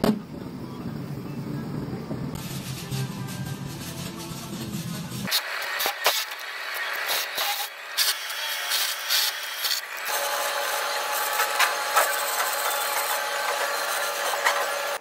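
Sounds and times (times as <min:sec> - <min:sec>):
welding arc crackling hiss: 0:02.4 - 0:15.0
power drill grinding through metal: 0:05.3 - 0:15.0.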